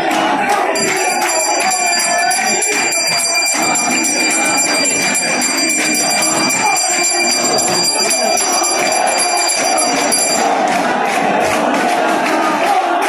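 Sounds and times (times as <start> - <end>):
crowd voices: 0.0 - 13.0
bell rung rapidly: 0.7 - 10.8.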